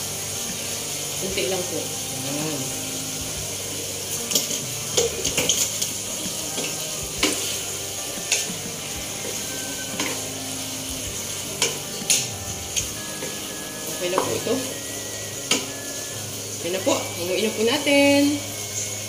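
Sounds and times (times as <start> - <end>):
food sizzling in a wok: 0.0 - 19.0
utensils scraping a pan: 4.1 - 10.3.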